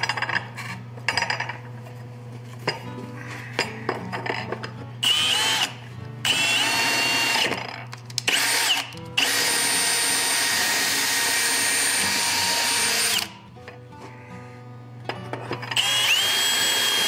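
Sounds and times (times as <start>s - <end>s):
cordless drill boring: 5.0s - 7.6s, 8.3s - 13.3s, 15.7s - 17.0s.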